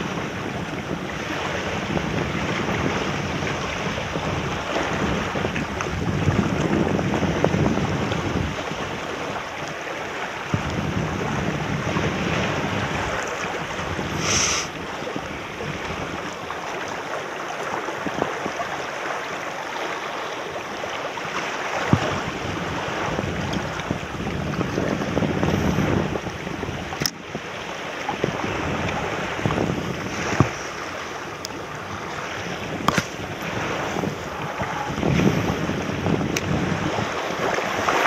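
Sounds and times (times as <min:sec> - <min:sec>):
small waves splashing on rocks: 0:00.0 - 0:38.0
wind gusting on microphone: 0:00.0 - 0:38.0
short hiss: 0:14.2 - 0:14.7.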